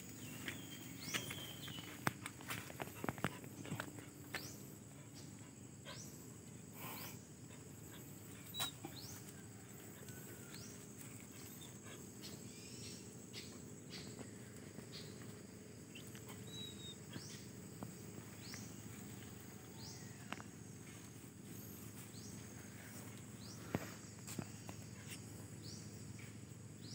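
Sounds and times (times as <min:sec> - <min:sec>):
sharp ticks and rustles: 0:00.0 - 0:04.6.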